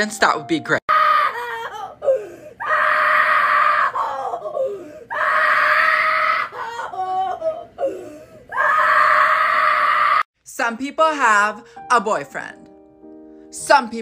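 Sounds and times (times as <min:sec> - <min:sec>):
wavering cries: 0:00.9 - 0:10.3.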